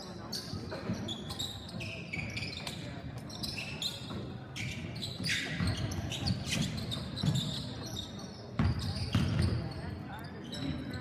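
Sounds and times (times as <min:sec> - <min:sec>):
sneakers squeaking on floor: 0:00.0 - 0:11.0
basketball bouncing on wooden floor: 0:08.6 - 0:09.6.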